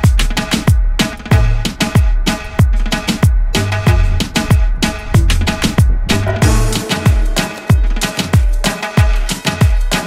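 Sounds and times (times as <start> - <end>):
deep kick drums: 0.0 - 8.0
sustained chord: 3.4 - 8.0.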